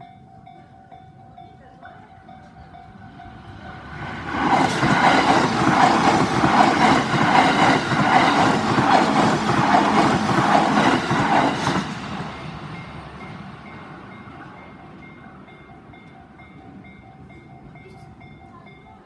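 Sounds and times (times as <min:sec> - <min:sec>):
level crossing warning bell: 0:00.0 - 0:04.2, 0:12.2 - 0:19.0
train wheels clattering over rails: 0:03.2 - 0:13.8.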